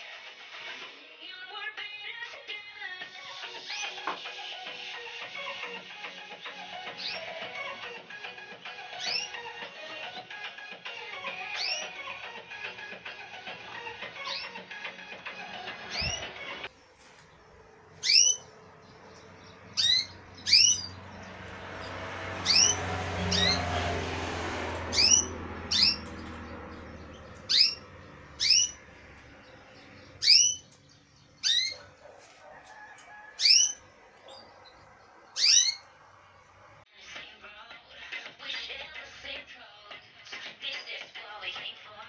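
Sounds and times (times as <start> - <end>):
canaries calling: 6.6 - 8.0, 8.7 - 9.9, 11.1 - 36.8
low background rumble: 16.8 - 32.2.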